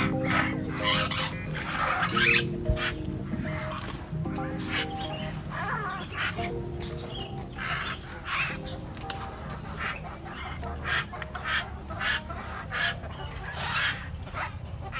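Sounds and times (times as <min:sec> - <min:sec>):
mynas squawking: 0:00.0 - 0:14.9.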